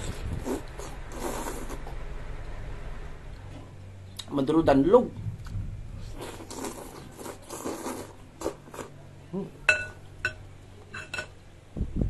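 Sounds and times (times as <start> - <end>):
slurping broth from spoon: 0.1 - 1.9, 6.1 - 8.9
chewing: 6.1 - 9.0
spoon clinking on ceramic bowl: 9.7 - 11.4.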